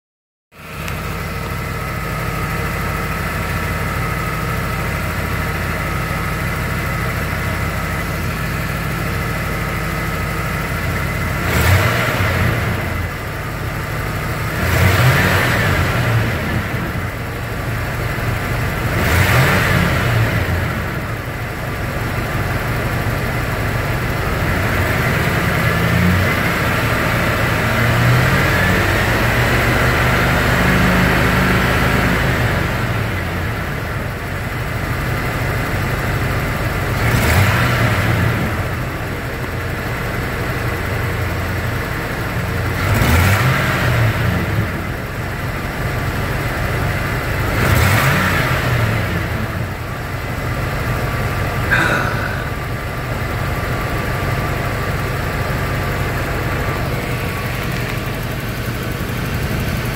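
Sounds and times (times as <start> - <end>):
car engine idling and revving: 0.5 - 59.9.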